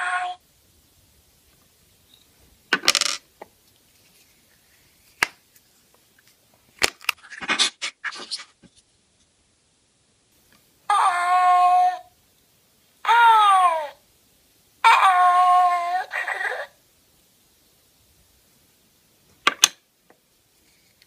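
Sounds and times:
plastic toys clicking on tabletop: 2.7 - 3.2, 19.4 - 19.8.

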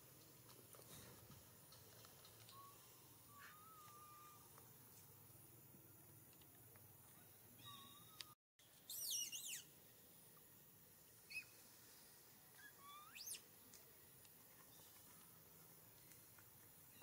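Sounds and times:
infant monkey squealing: 2.6 - 4.4, 8.9 - 9.7, 12.6 - 13.4.

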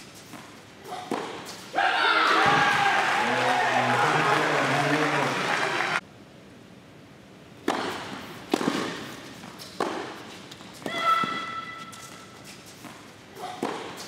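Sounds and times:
tennis ball hit by racket: 0.2 - 1.6, 7.6 - 12.1, 12.8 - 14.0.

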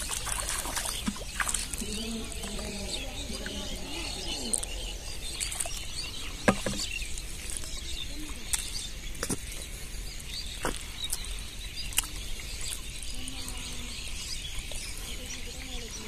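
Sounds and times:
fish tapping in plastic bucket: 0.0 - 2.6, 6.4 - 7.0
birds chirping: 0.0 - 16.0.

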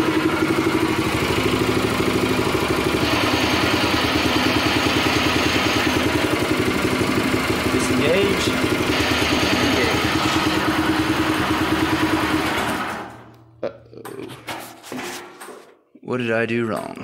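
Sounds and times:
small engine running at low speed: 0.0 - 13.3.

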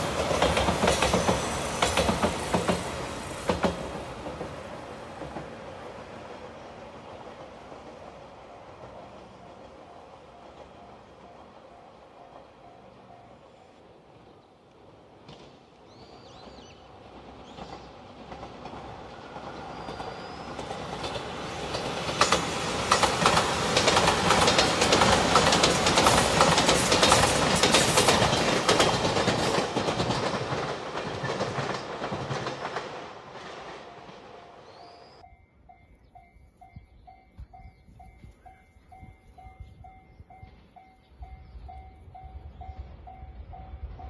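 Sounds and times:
electric train passing: 0.0 - 44.0
level crossing warning bell: 8.5 - 13.7, 33.7 - 44.0
wheels clattering over rail joints: 16.4 - 34.3.

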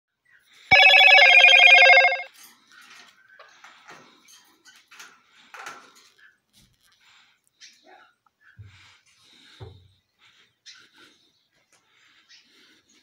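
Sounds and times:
electronic ringing tone: 0.7 - 2.3.

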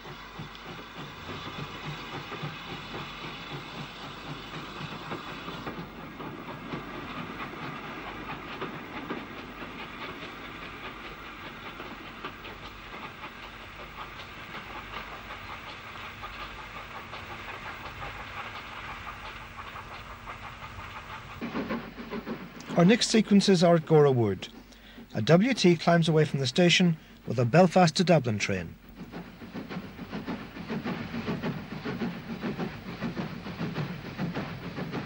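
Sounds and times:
wheels clattering over rail joints: 0.0 - 26.9
steam hiss: 0.0 - 35.0
steam locomotive exhaust beats: 0.0 - 35.0.

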